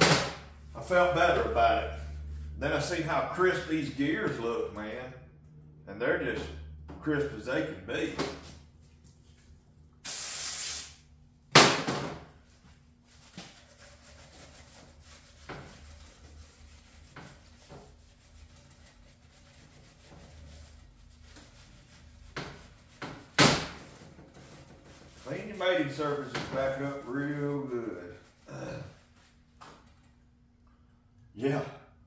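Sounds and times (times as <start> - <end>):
aerosol spray hiss: 10.0 - 11.0.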